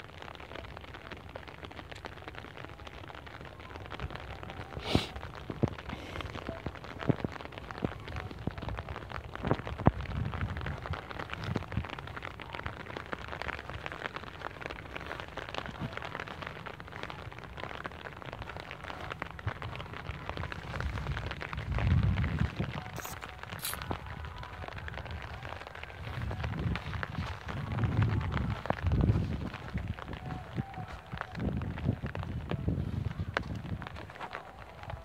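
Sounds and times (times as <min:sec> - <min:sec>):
wind buffeting microphone: 0:03.5 - 0:35.0.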